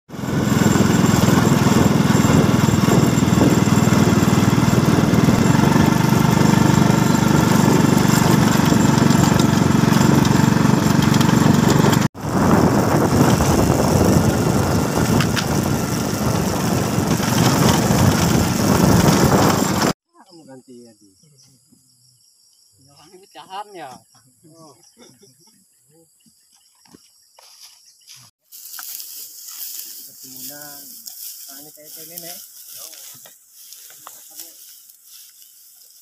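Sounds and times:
motorcycle engine running: 0.1 - 20.0.

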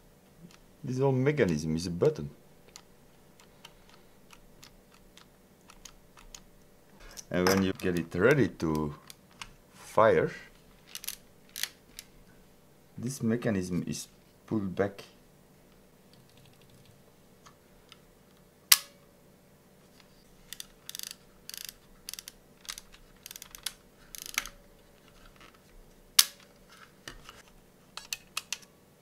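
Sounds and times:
camera ratcheting clicks: 20.5 - 24.5.

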